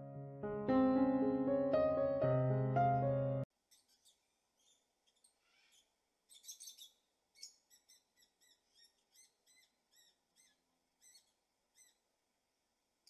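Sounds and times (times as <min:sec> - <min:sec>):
bird chirping: 0:03.7 - 0:12.0.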